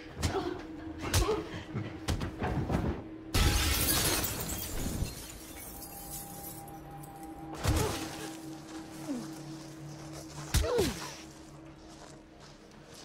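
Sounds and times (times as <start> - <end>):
quiet film music: 0.0 - 13.0
glass shattering: 3.4 - 6.7.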